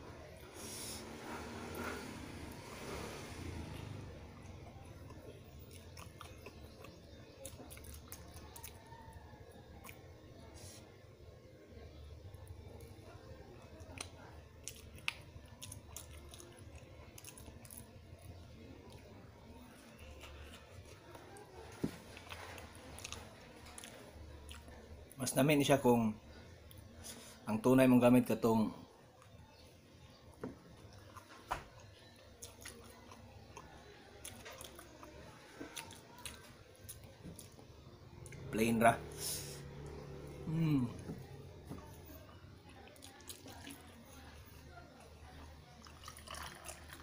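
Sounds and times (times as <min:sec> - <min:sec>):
chewing with soft crunches: 0:02.6 - 0:25.2, 0:26.2 - 0:27.4, 0:29.0 - 0:47.0
person chewing: 0:04.7 - 0:08.8, 0:09.8 - 0:10.0, 0:13.8 - 0:17.9, 0:19.8 - 0:24.7, 0:32.1 - 0:34.9, 0:35.6 - 0:37.6, 0:42.8 - 0:44.0.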